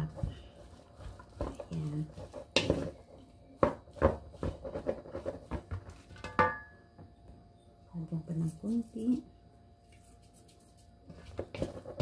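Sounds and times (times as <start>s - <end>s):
wooden paddle scraping metal bowl: 0.0s - 3.2s, 3.9s - 6.3s.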